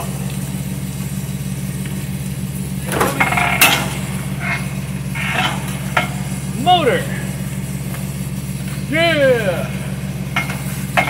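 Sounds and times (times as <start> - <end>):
engine idling: 0.0 - 11.0
metal clanks and rattles: 2.8 - 6.4, 10.2 - 11.0.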